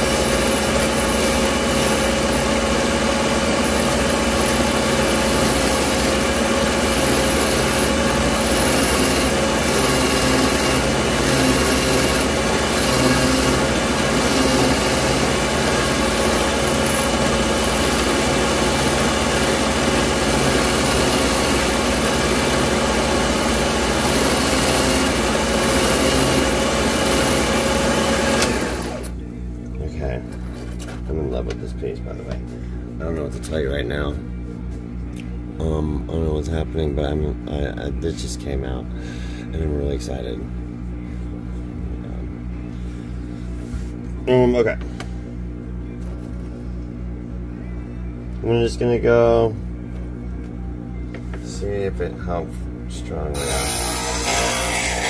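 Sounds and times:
ring saw grinding glass: 53.4 - 55.0.

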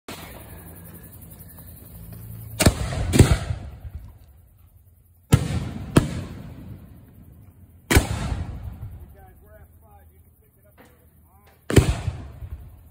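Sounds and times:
firework mortar booms: 2.5 - 4.2, 5.3 - 9.4, 11.6 - 12.9.

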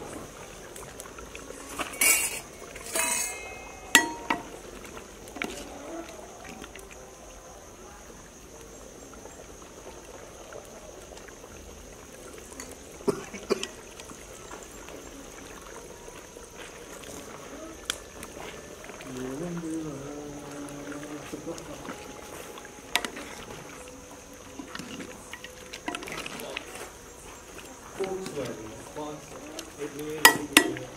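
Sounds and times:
steel tumblers clinking on plate: 1.5 - 4.8, 30.2 - 30.9
soup being poured: 18.6 - 30.9.

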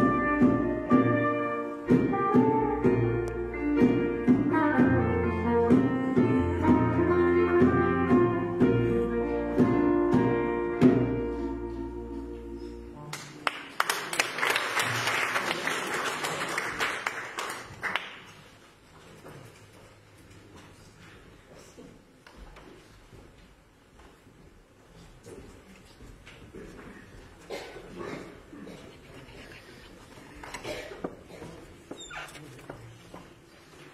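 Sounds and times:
instrumental church music: 0.0 - 13.3
congregation applauding: 13.1 - 18.6.

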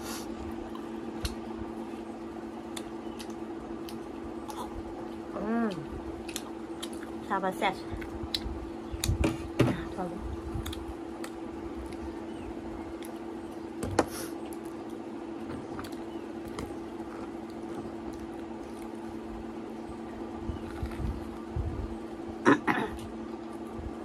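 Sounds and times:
steady low hum: 0.0 - 24.0
chewing: 2.7 - 7.2.

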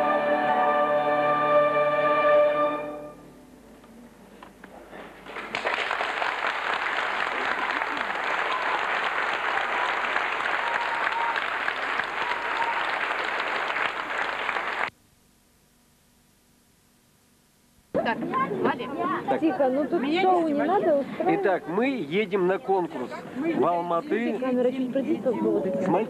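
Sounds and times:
audience applause: 5.0 - 14.9.

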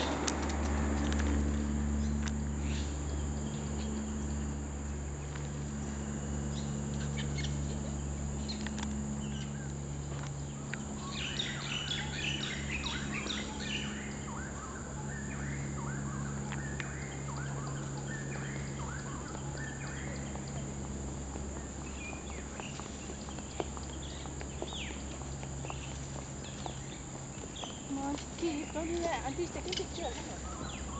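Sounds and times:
steady low hum: 0.0 - 30.9
bird chirping: 6.5 - 30.9.

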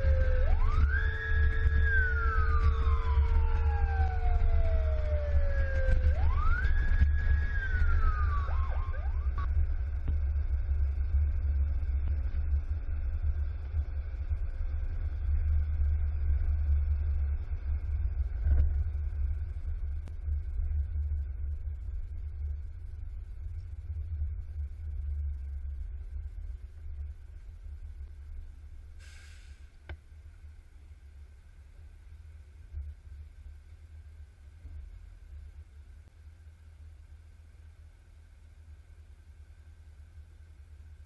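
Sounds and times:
fire engine siren wailing: 0.0 - 9.5
wind and road noise: 0.0 - 36.1.

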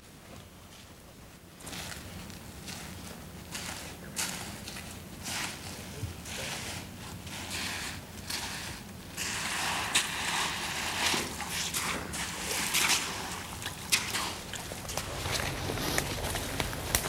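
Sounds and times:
footsteps crunching on gravel: 1.6 - 7.6, 10.9 - 17.0.

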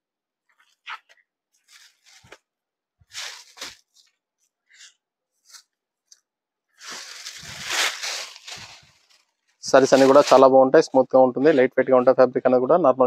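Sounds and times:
fabric rustling: 0.5 - 4.6, 6.8 - 10.5.

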